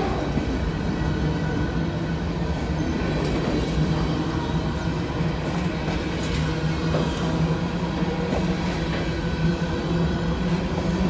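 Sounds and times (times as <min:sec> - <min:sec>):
steel wheels running on rails: 0:00.0 - 0:11.0.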